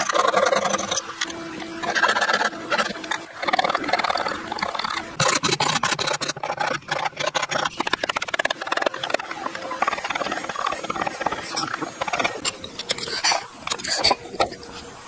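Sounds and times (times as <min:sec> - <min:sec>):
hand tool rasping on wood: 0:00.0 - 0:14.6.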